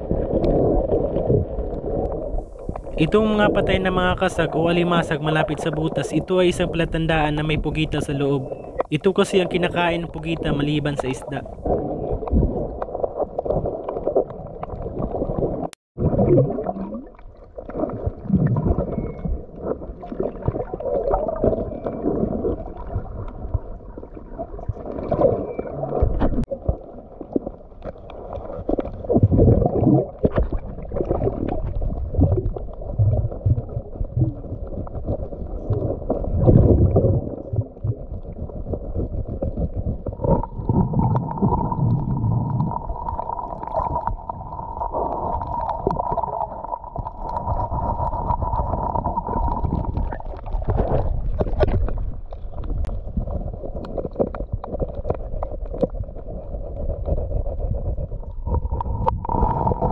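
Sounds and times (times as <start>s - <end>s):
underwater water surging: 0.0s - 59.9s
knocks underwater: 28.6s - 44.4s, 45.2s - 56.3s.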